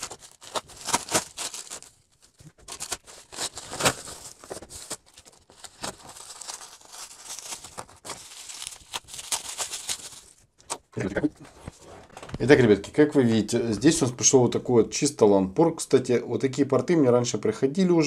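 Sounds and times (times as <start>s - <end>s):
plastic packaging crinkling and ripping: 0.0s - 10.8s.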